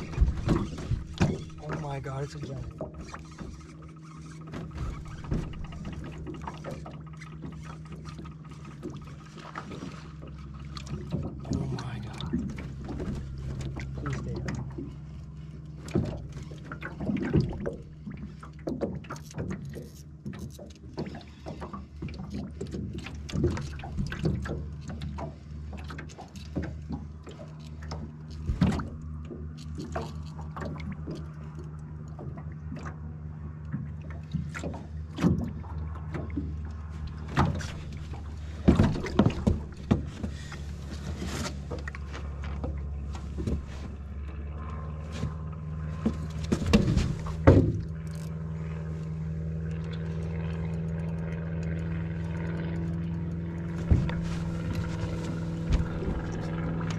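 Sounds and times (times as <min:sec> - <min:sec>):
steady low hum: 0:00.0 - 0:56.9
footsteps on metal boat deck: 0:36.2 - 0:48.0, 0:52.0 - 0:56.9.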